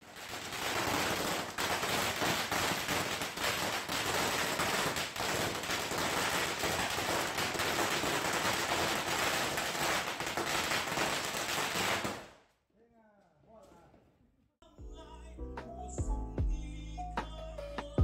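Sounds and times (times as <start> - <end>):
firecrackers crackling: 0.0 - 12.4.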